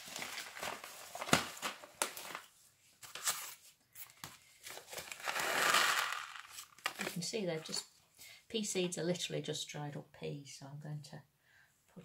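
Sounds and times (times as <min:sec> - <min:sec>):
paper packet rustling: 0:00.0 - 0:07.8.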